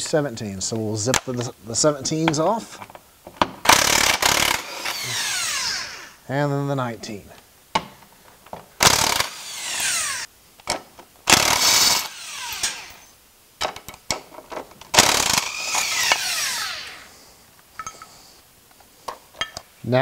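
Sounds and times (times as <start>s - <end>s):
impact wrench whine: 3.6s - 6.2s, 8.8s - 10.3s, 11.3s - 13.1s, 14.9s - 17.1s.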